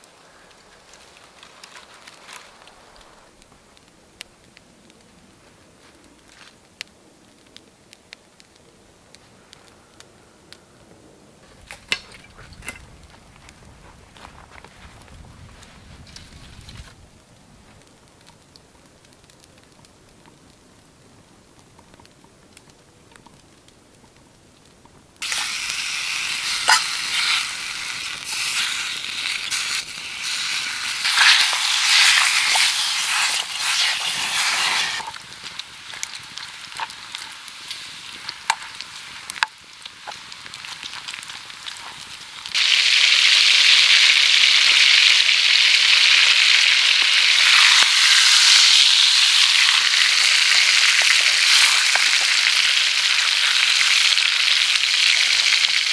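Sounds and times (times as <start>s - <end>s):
bacon sizzling and popping: 25.2s - 55.9s
steak searing sizzle: 25.2s - 55.9s.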